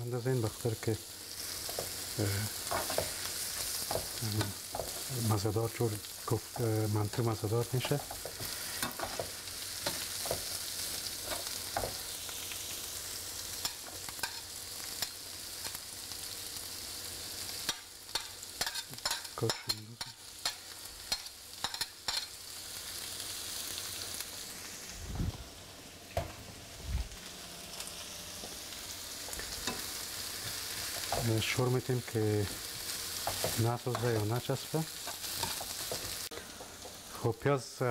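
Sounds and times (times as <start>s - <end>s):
onions sizzling in oil: 0.0s - 37.9s
spoon scraping a pan: 2.6s - 5.1s, 35.0s - 36.2s.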